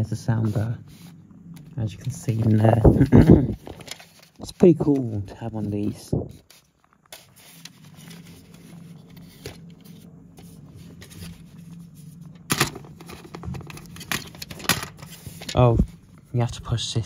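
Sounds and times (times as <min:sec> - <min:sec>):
faint low hum: 0:00.0 - 0:17.0
plastic clattering: 0:02.6 - 0:05.2, 0:12.3 - 0:15.7.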